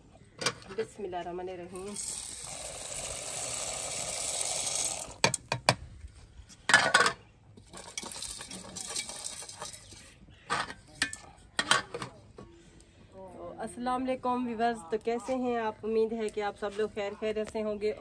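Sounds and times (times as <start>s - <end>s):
lentils pouring into water: 1.8s - 5.2s.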